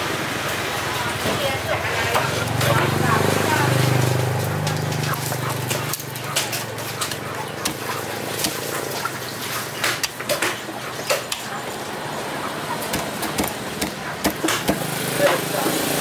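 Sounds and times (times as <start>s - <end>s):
steady background noise: 0.0s - 16.0s
knife chopping through fish bone: 7.6s - 8.7s, 12.8s - 14.8s.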